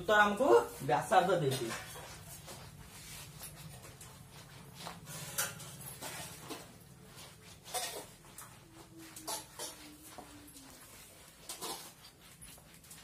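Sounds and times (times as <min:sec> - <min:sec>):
faint drawn-out whine: 0:01.8 - 0:11.4.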